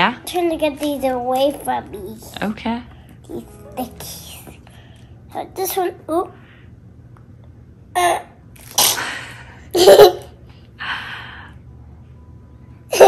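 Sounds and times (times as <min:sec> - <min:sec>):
sneeze-like burst: 0:08.6 - 0:09.3.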